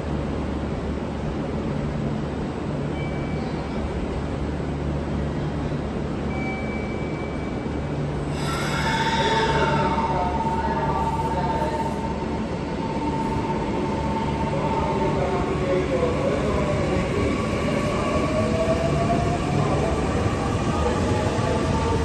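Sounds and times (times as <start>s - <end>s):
steady high tone: 6.3s - 18.6s.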